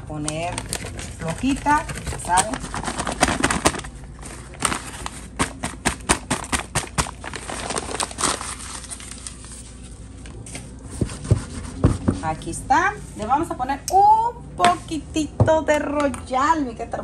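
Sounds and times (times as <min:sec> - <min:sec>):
paper bag crinkling: 0:00.0 - 0:10.8.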